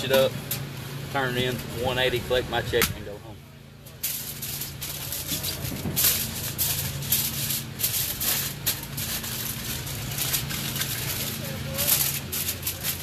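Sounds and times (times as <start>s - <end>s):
aluminium foil crinkling: 3.8s - 13.0s.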